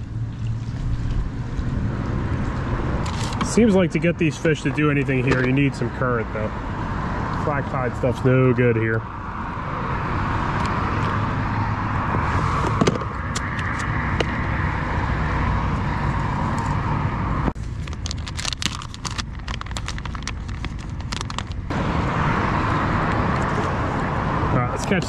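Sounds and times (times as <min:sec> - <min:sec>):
road traffic noise: 0:00.0 - 0:25.0
rapid small clicks and ticks: 0:17.8 - 0:21.7.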